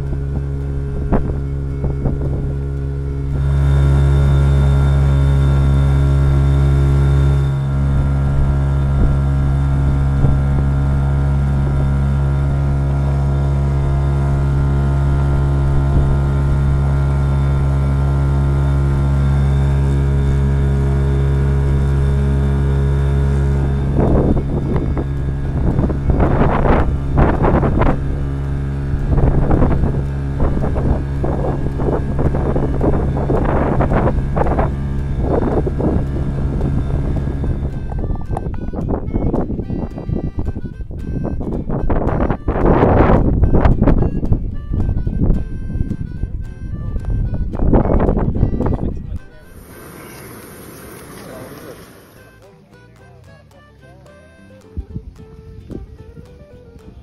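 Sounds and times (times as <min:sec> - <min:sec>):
wind noise on microphone: 0:00.0 - 0:52.4, 0:54.4 - 0:57.0
outboard motor running: 0:00.0 - 0:57.0
water splashing: 0:49.5 - 0:52.3.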